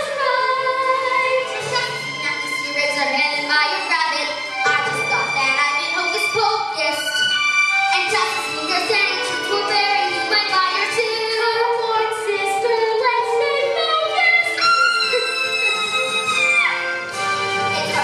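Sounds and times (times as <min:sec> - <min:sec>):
musical accompaniment: 0:00.0 - 0:18.0
children singing a duet: 0:08.0 - 0:16.0.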